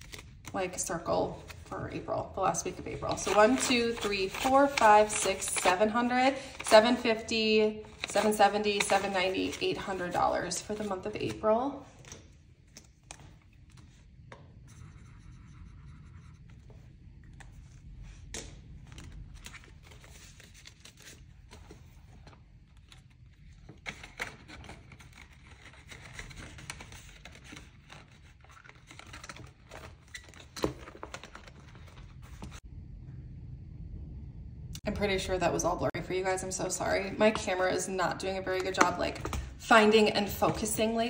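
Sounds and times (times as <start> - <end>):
paper and plastic rustling: 0.0 - 14.0, 18.4 - 32.6.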